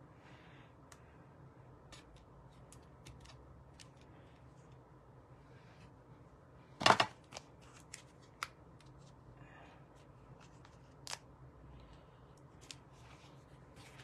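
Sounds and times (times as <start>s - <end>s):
paper rustling: 12.6s - 14.0s.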